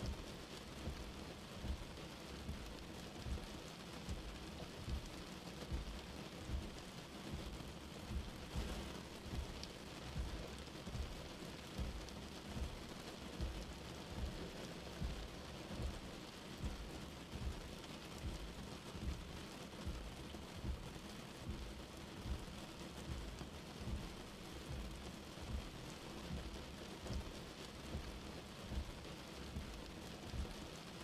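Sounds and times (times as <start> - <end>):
rain on a windscreen: 0.0 - 31.0.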